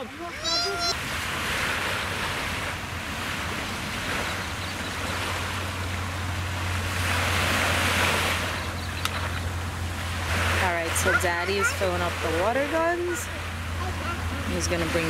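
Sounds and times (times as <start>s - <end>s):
small waves washing up shore: 0.0s - 15.0s
wind rumble on microphone: 0.7s - 11.0s.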